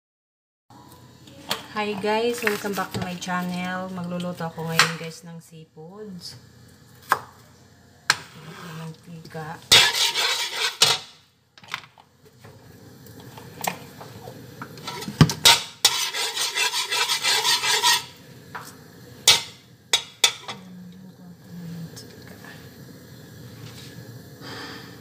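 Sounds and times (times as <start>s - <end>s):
metal spatula scraping a wok: 9.7s - 11.2s, 14.8s - 18.2s.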